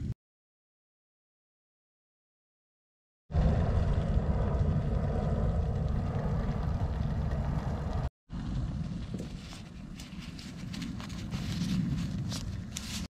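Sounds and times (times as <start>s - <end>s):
cloth pouch rustling: 9.4s - 13.0s.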